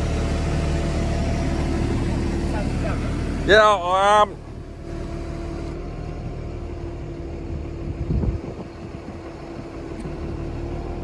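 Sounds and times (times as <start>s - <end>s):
roller mill droning: 0.0s - 11.0s.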